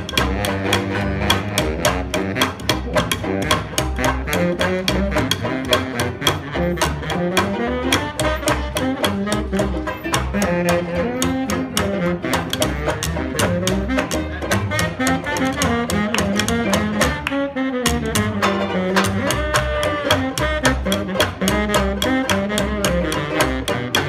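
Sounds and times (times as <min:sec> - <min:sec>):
saxophone melody: 0:00.0 - 0:24.0
strummed banjo: 0:00.0 - 0:24.0
walking upright bass: 0:00.0 - 0:24.0
hand claps on the beat: 0:08.0 - 0:09.1.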